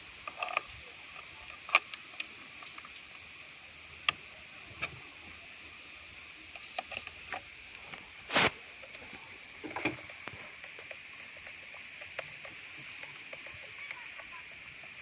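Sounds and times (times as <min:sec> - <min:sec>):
steady high hiss: 0:00.0 - 0:15.0.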